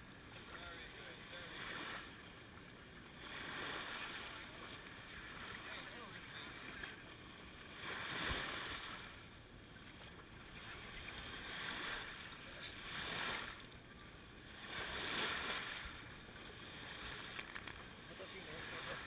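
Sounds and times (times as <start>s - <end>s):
surf washing over sand: 0.3s - 2.2s, 3.2s - 7.0s, 7.6s - 9.3s, 10.6s - 13.8s, 14.5s - 19.0s.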